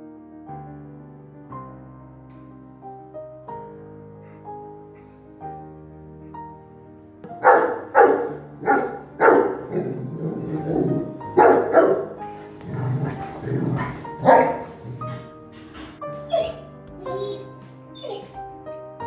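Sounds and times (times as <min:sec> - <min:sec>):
soft piano music: 0:00.0 - 0:19.0
dog barking loudly: 0:07.3 - 0:15.3, 0:16.3 - 0:18.3.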